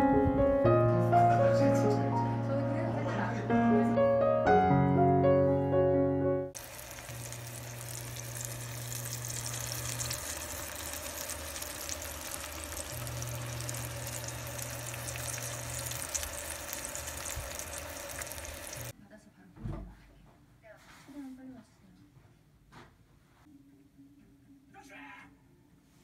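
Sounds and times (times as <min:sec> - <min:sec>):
food sizzling in frying pan: 0:06.6 - 0:18.9
low hum: 0:06.6 - 0:18.9.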